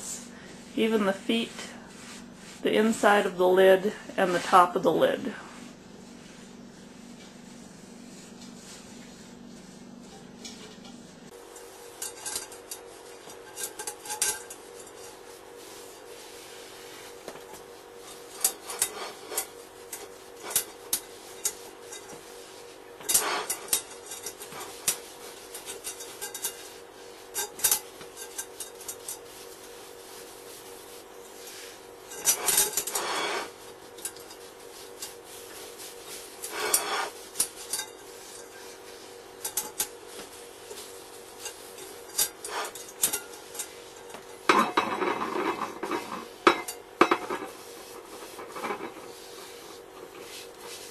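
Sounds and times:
paper towel rubbing: 0:11.3 - 0:46.4, 0:47.3 - 0:50.9.

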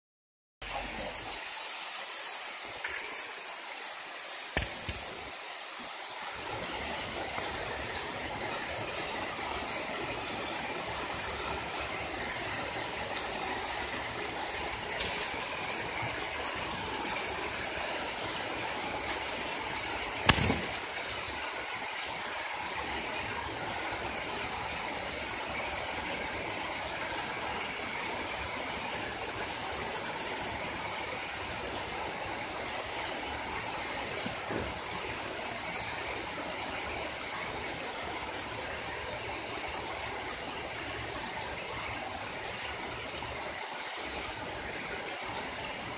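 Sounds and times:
heavy rain on pavement: 0:00.6 - 0:45.9
sharp knock: 0:20.3 - 0:20.8.

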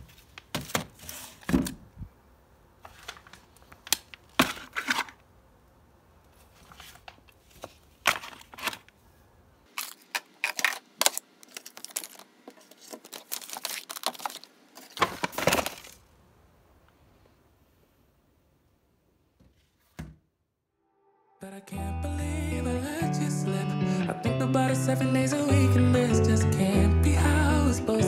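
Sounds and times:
plastic pouches crinkling: 0:09.7 - 0:16.1.

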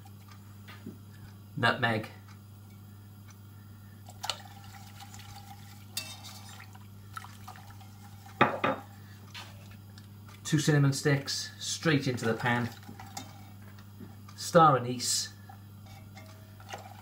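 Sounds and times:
whisk stirring liquid in pot: 0:04.1 - 0:08.4, 0:11.8 - 0:14.4, 0:15.5 - 0:17.0
whisk clinking against pot: 0:06.0 - 0:06.5, 0:15.8 - 0:17.0.

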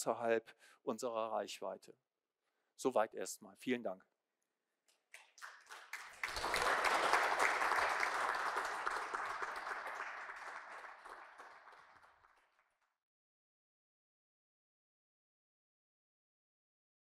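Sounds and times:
audience applause: 0:05.2 - 0:12.7.

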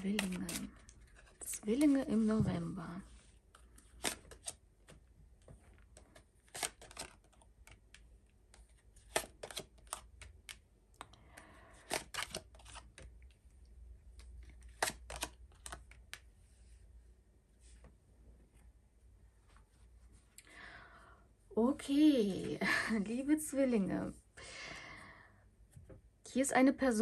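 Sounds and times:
cards being shuffled: 0:00.0 - 0:11.2, 0:11.8 - 0:13.3, 0:14.1 - 0:16.3
cards laid on a cloth table: 0:00.0 - 0:21.4.

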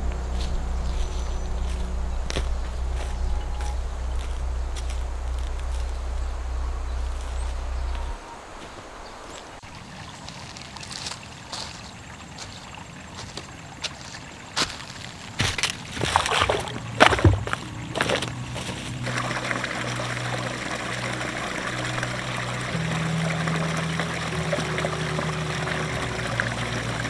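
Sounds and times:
boots crunching on stones and leaves: 0:00.0 - 0:19.2
brook trickling over stones: 0:00.3 - 0:27.0.

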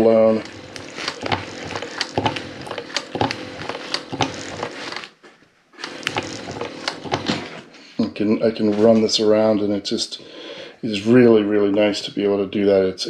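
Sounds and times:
industrial sewing machine stitching: 0:00.0 - 0:05.2, 0:05.8 - 0:07.7
sharp stitch clicks: 0:00.4 - 0:05.1, 0:05.8 - 0:07.5.

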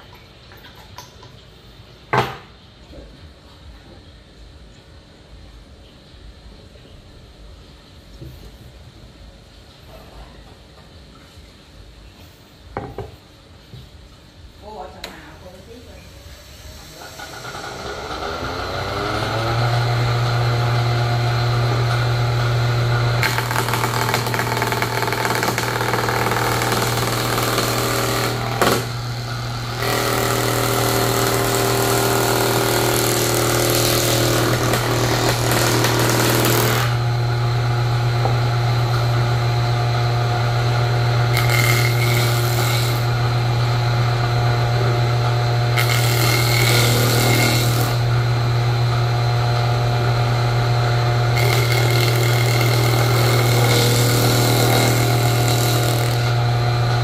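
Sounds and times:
planer blades cutting boards: 0:16.8 - 0:57.0
jointer planer humming: 0:16.9 - 0:57.0.

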